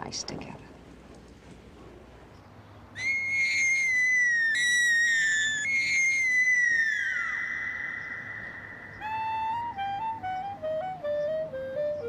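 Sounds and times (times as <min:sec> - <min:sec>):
high whistle-like tone: 0:03.0 - 0:10.9.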